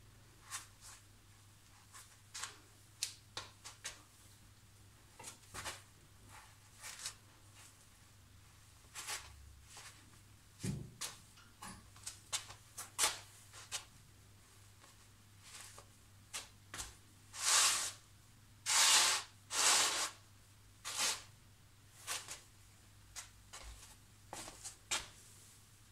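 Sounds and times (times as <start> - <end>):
slippers scuffing on tiles: 1.7 - 2.7, 12.0 - 13.9, 14.8 - 18.0, 22.0 - 22.5, 23.1 - 25.3.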